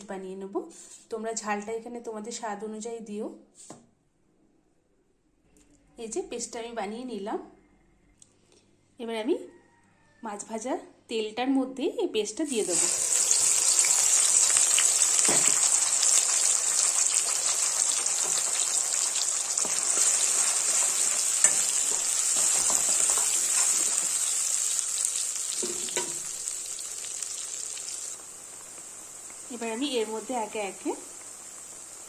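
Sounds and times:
paste sizzling in hot oil: 0:12.5 - 0:32.0
spatula knocking: 0:15.2 - 0:15.7, 0:19.6 - 0:24.3, 0:25.6 - 0:26.3.

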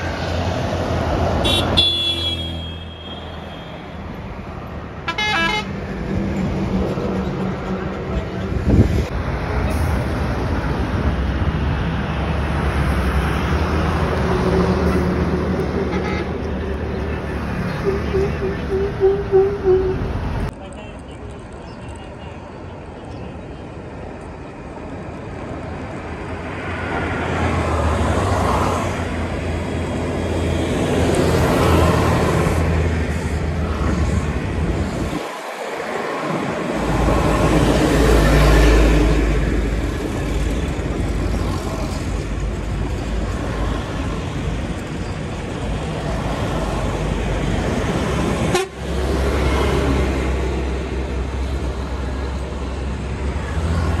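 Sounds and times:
vehicle engines rumbling: 0:00.0 - 0:54.0
car horns tooting: 0:01.4 - 0:03.9, 0:05.0 - 0:05.8, 0:17.7 - 0:20.5, 0:48.5 - 0:48.9.

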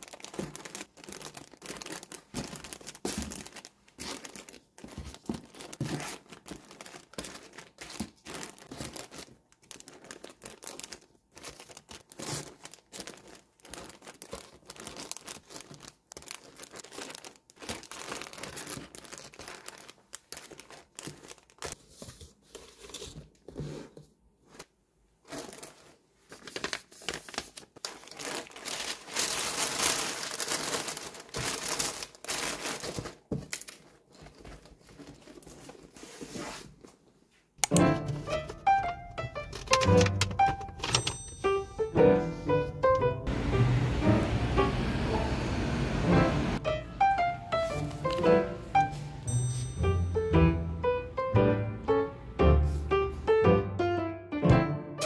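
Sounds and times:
plastic bags crinkling: 0:00.0 - 0:22.0, 0:24.5 - 0:36.9, 0:37.6 - 0:41.9
tissue paper rustling: 0:00.0 - 0:37.0, 0:47.5 - 0:49.8.

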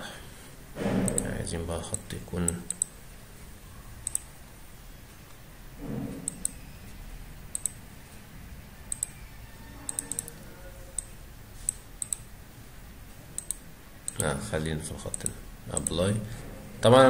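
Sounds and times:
computer mouse clicking: 0:01.1 - 0:01.3, 0:02.5 - 0:03.0, 0:04.0 - 0:04.4, 0:06.2 - 0:06.7, 0:07.5 - 0:07.8, 0:08.9 - 0:09.2, 0:09.8 - 0:12.3, 0:13.4 - 0:14.4, 0:15.1 - 0:16.0.

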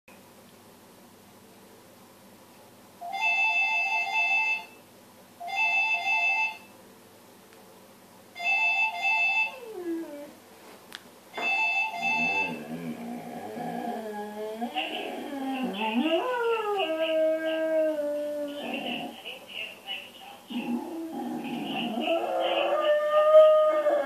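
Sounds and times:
dog howling: 0:09.5 - 0:10.4, 0:12.1 - 0:19.1, 0:20.5 - 0:24.0
electronic alert beeps: 0:11.5 - 0:12.6.

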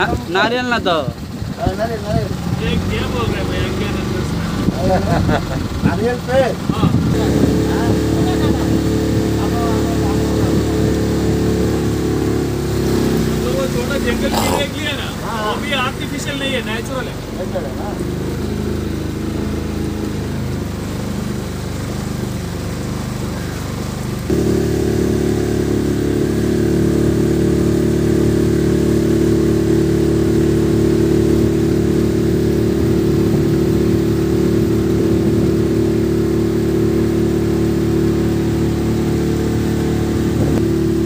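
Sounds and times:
motorboat engine running: 0:00.0 - 0:41.0.

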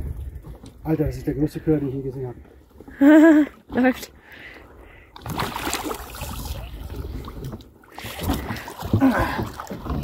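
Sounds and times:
water splashing against boat hull: 0:05.1 - 0:10.0.

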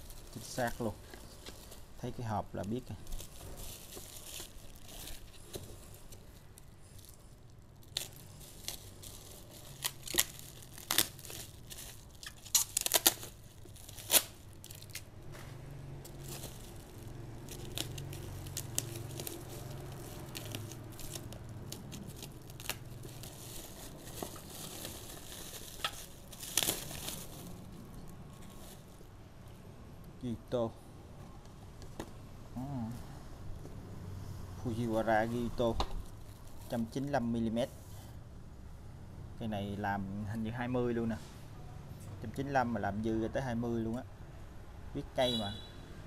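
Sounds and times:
bubble wrap snapping: 0:00.0 - 0:15.3, 0:16.0 - 0:29.0
plastic packaging crinkling: 0:00.0 - 0:29.1, 0:36.0 - 0:37.2.

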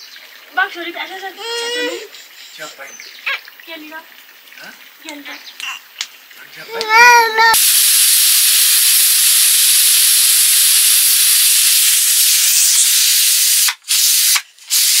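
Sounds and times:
pressure cooker hissing steam: 0:07.6 - 0:15.0.

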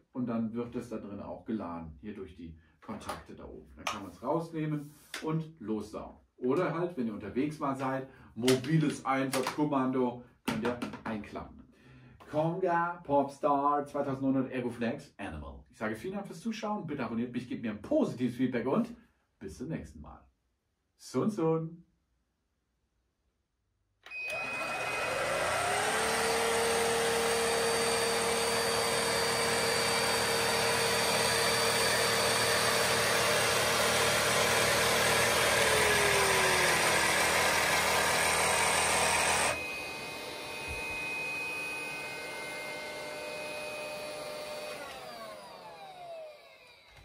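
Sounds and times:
stick vacuum motor whining: 0:24.0 - 0:47.0.

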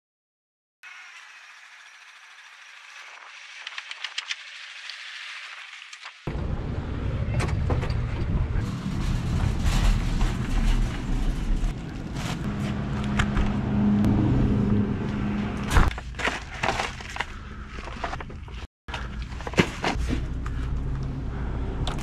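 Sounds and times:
shopping cart rolling: 0:08.6 - 0:12.8
items being handled: 0:08.6 - 0:13.6, 0:15.7 - 0:21.1.

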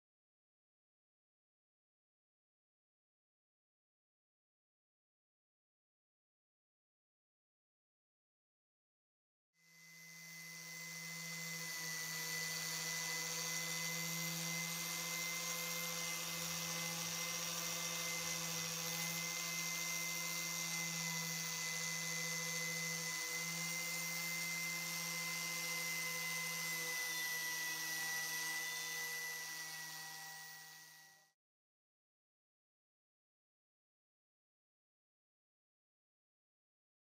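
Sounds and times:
electric power tool motor whine: 0:09.6 - 0:31.4.

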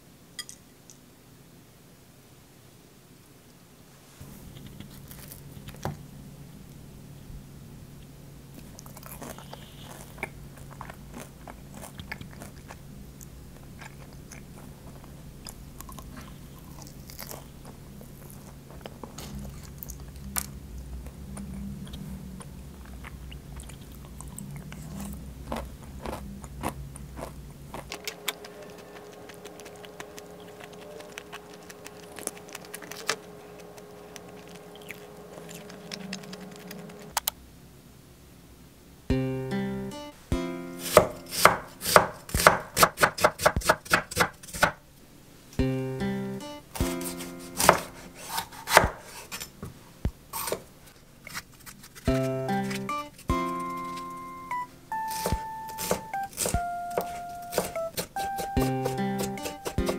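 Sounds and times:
steady low hum: 0:00.0 - 0:42.8, 0:43.9 - 0:59.9
biting and chewing crisp food: 0:04.4 - 0:05.9, 0:08.6 - 0:37.3.

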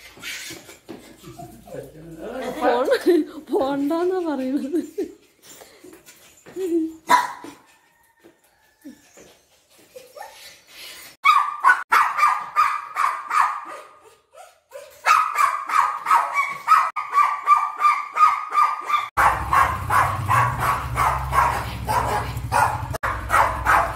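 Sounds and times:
small dog barking and yelping: 0:07.0 - 0:07.7, 0:11.2 - 0:23.9
motorcycle engine rumbling: 0:19.2 - 0:23.9.

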